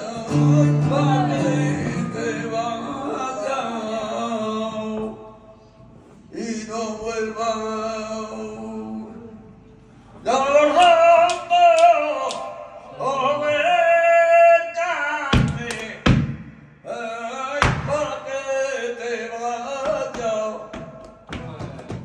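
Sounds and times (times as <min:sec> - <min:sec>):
flamenco singing: 0:00.0 - 0:05.1, 0:17.2 - 0:22.0
heel stamps on wooden stage: 0:19.8 - 0:22.0.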